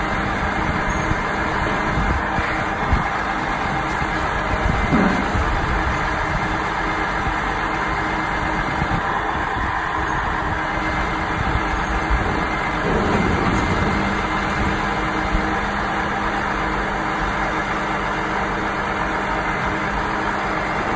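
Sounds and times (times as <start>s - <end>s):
diesel engine running: 0.0s - 20.9s.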